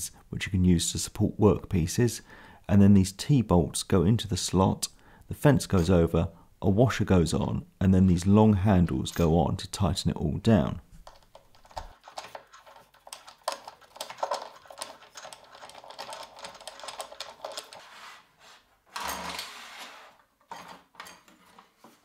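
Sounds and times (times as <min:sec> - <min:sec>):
fence scraping on table top: 0:17.7 - 0:20.8.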